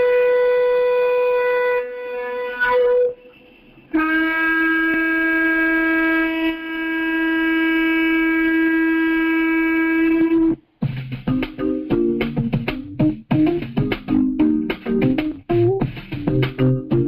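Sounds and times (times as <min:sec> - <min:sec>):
shofar long blast: 0:00.0 - 0:10.6
song with guitar and drums: 0:10.8 - 0:17.0.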